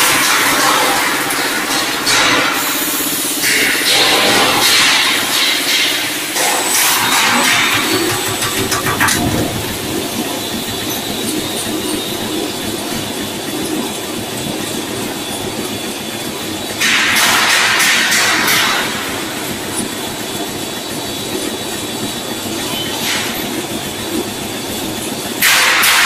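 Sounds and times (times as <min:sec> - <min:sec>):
machinery clatter and rattle: 0:00.0 - 0:26.0
hissing rush: 0:06.7 - 0:10.8.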